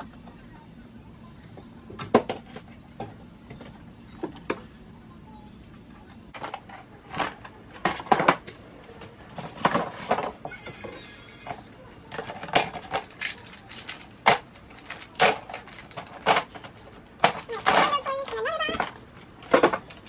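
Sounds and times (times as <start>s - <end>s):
plastic bins clunking and knocking: 6.3s - 10.8s, 14.2s - 20.0s.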